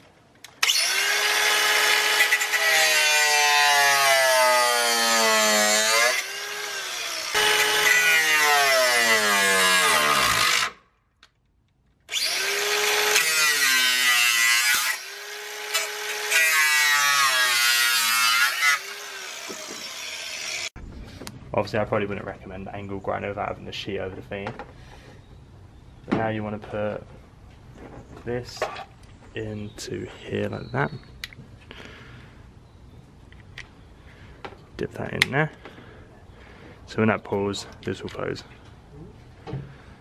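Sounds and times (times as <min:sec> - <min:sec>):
angle grinder cutting steel: 0:00.6 - 0:10.8, 0:12.1 - 0:20.8.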